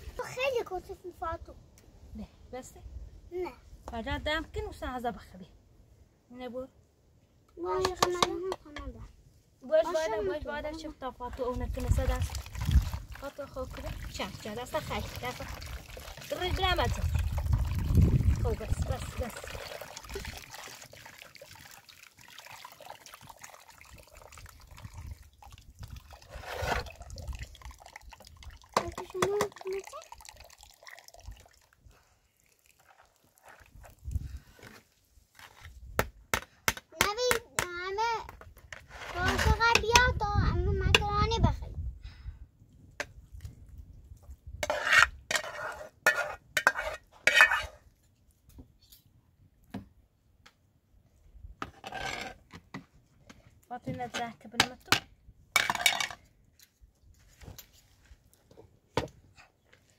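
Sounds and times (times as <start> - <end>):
water trickling into plastic basin: 11.4 - 34.5
metal spoon scraping pan: 44.6 - 47.8.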